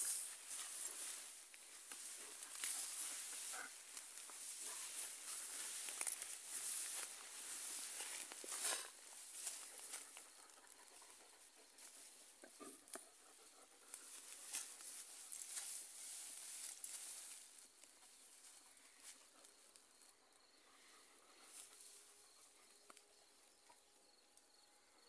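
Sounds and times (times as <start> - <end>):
tall grass rustling and swishing: 0.0 - 10.2, 14.0 - 19.2
faint crackles: 0.0 - 13.1.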